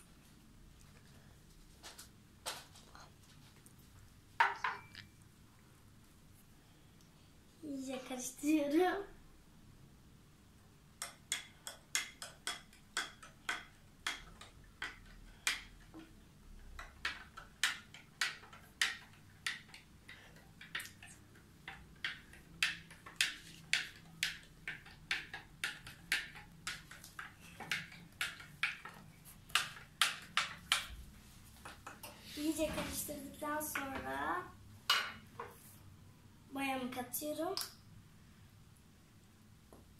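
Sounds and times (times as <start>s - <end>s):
stick clicking against cup: 11.0s - 31.0s.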